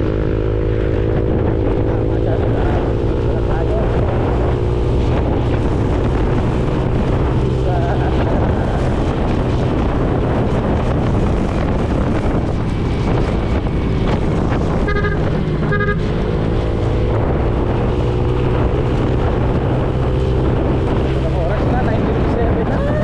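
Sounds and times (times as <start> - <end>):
motorcycle engine hum: 0.0 - 23.0
wind noise on microphone: 0.0 - 23.0
horn beeps: 14.8 - 16.2.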